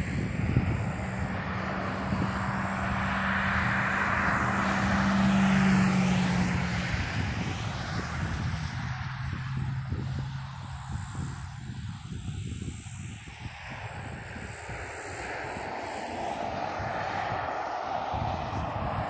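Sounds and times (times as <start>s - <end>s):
pickup truck passing: 0.0s - 11.7s.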